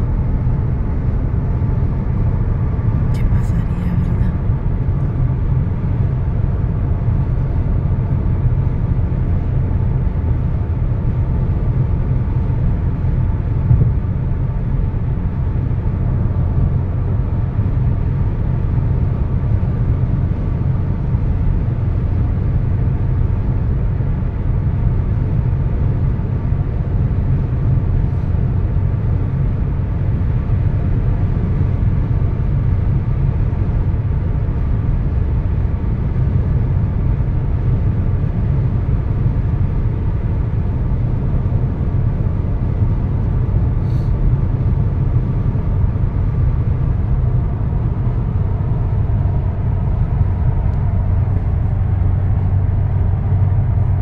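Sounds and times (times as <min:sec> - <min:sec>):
car road noise rumble: 0:00.0 - 0:54.0.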